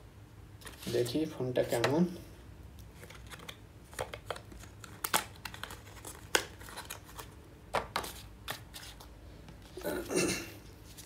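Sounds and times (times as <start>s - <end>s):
packaging crinkling and tearing: 3.0s - 7.4s.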